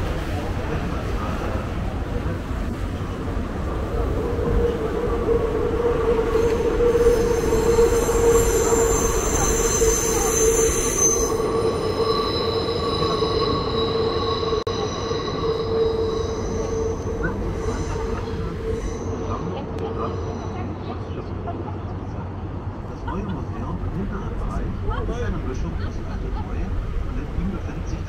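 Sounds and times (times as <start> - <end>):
train wheels squealing: 4.4 - 20.9.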